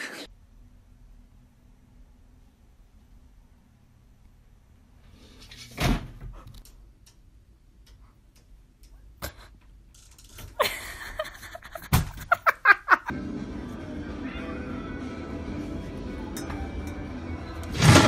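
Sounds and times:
objects thumping: 17.6 - 18.0.

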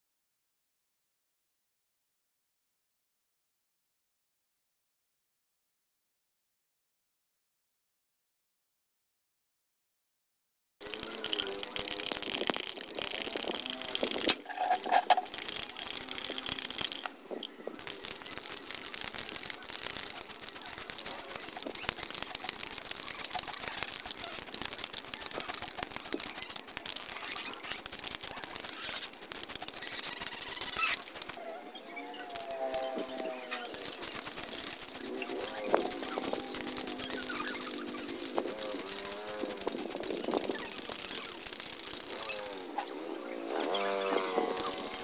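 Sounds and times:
spray paint can hissing: 10.8 - 17.2, 17.8 - 31.4, 32.2 - 42.8, 43.8 - 45.0.

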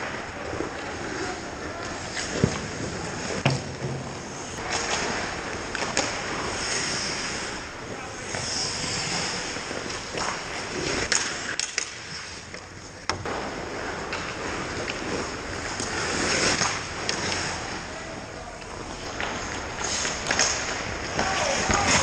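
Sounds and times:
hockey sticks and puck clacking: 0.0 - 22.0
skates scraping on ice: 0.0 - 22.0
players calling out: 21.0 - 22.0.

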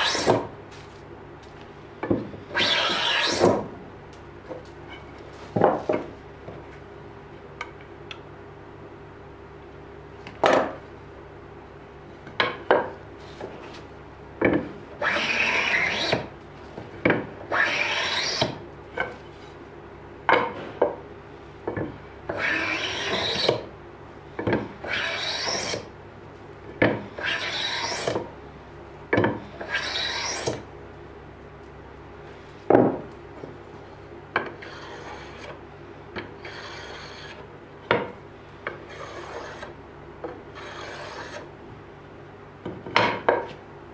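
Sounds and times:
rasping strokes on wood: 2.5 - 3.5, 15.0 - 16.3, 17.5 - 18.6, 22.3 - 23.6, 24.8 - 25.9, 27.2 - 28.2, 29.5 - 30.6, 34.6 - 35.6, 36.4 - 37.4, 38.9 - 39.7, 40.6 - 41.5.

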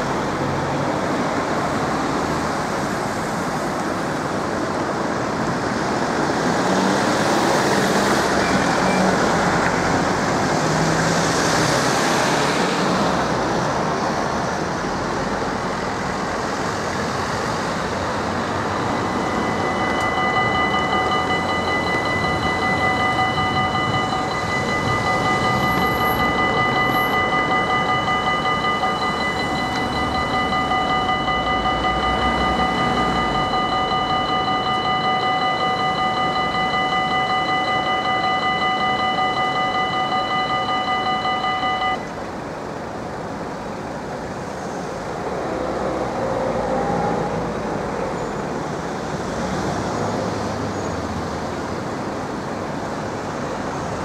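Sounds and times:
road traffic: 0.0 - 54.0
level crossing bell ringing: 18.4 - 42.1.

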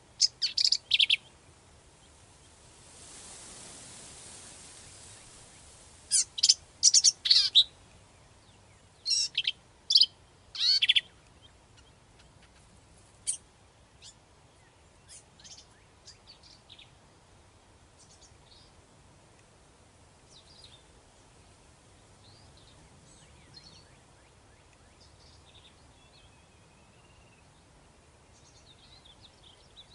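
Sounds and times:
faint bird chirps: 0.0 - 2.6, 4.3 - 13.4, 14.0 - 17.0, 18.0 - 18.8, 22.1 - 29.9
bird singing high-pitched phrases: 9.0 - 11.1.

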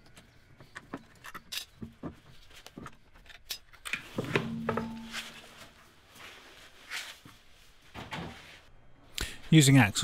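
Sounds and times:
low ringing hum: 4.5 - 6.0.

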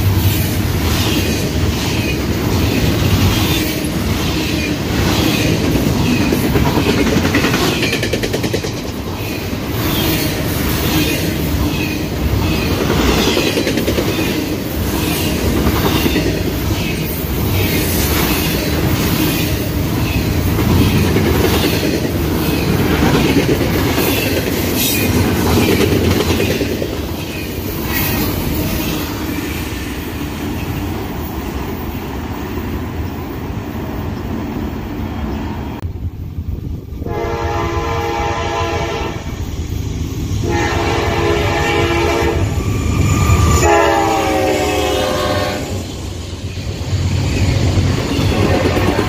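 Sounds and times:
train wheels rumbling on rails: 0.0 - 49.0
locomotive air horn blasts: 37.0 - 39.3, 40.4 - 42.6, 43.6 - 45.8.

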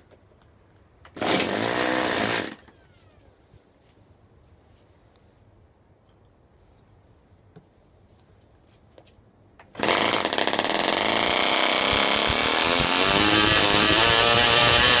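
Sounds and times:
model engine running at high speed: 10.3 - 15.0.

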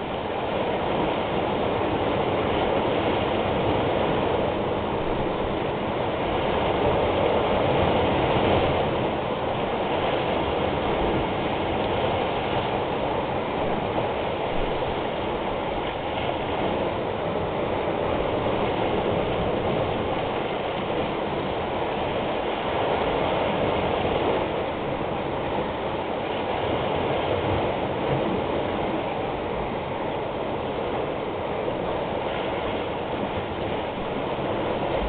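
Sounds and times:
surf breaking on rocky shore: 0.0 - 35.0.

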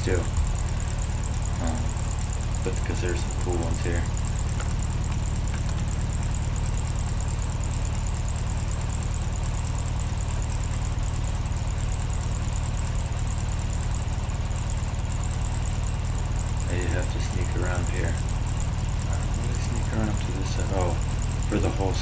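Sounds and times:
high-pitched whine: 0.0 - 4.1
low rumbling hum: 0.0 - 22.0.

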